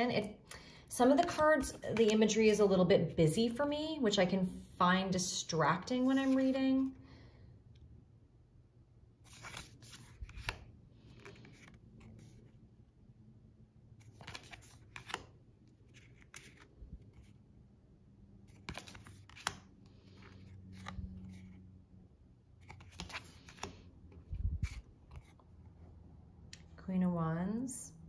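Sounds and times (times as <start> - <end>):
cards sliding and snapping: 9.2 - 12.5, 14.0 - 17.4, 18.4 - 21.6, 22.6 - 25.4.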